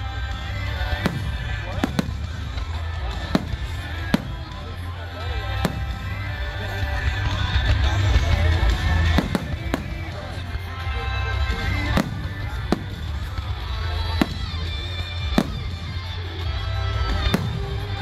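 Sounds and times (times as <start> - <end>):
music playing: 0.0 - 18.0
fireworks bangs: 0.2 - 18.0.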